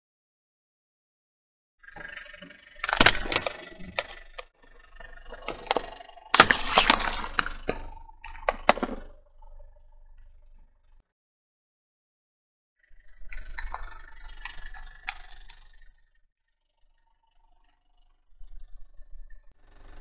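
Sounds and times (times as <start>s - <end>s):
plastic jars cracking under tyre: 2.8s - 4.5s, 5.3s - 9.1s, 13.3s - 15.7s
loud crunching bursts: 5.4s - 7.9s.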